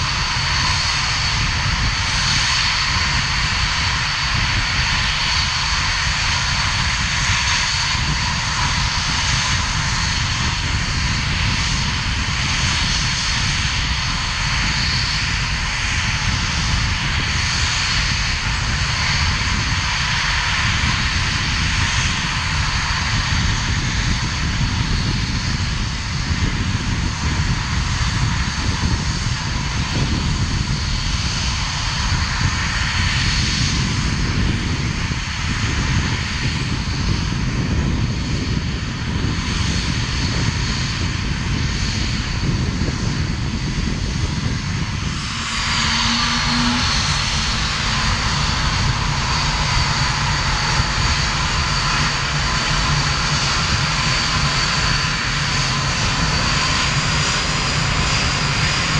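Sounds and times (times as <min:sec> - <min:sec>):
jet engine whine and rumble: 0:00.0 - 0:58.9.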